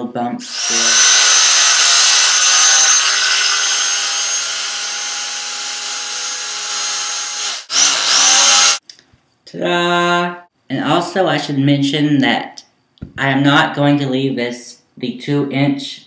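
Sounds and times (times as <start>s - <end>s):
electric knife cutting foam: 0.4s - 8.8s.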